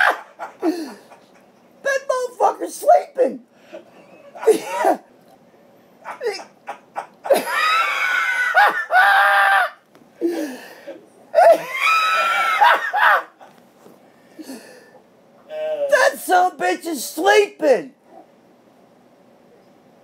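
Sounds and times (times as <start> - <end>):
men laughing loudly: 0.0 - 1.5, 3.6 - 5.1, 6.0 - 9.8, 11.4 - 13.6
men snickering: 0.0 - 1.6, 3.6 - 5.1, 6.0 - 10.7, 11.4 - 13.6.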